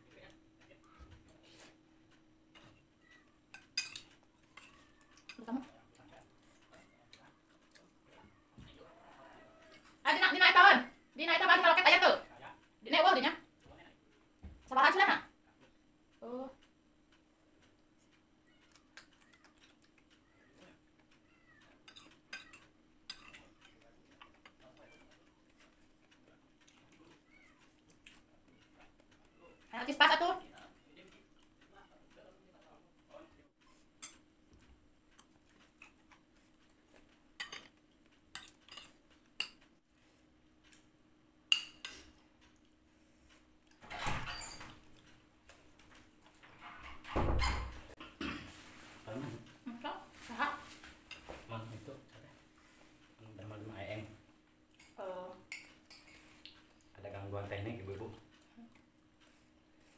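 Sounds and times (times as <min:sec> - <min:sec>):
spoon clinking on ceramic bowl: 0:03.5 - 0:04.7, 0:41.5 - 0:42.0
metal spoon clinking on plates: 0:03.5 - 0:05.5, 0:21.8 - 0:25.2, 0:34.0 - 0:34.2, 0:37.4 - 0:39.7, 0:41.4 - 0:42.2, 0:54.8 - 0:56.2.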